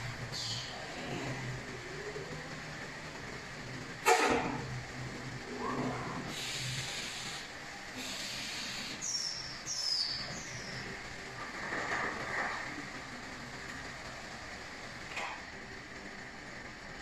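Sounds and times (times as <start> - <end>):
low machine hum: 0.0 - 17.0
robotic palletizer working: 0.0 - 17.0
compressed air hissing: 6.3 - 10.8.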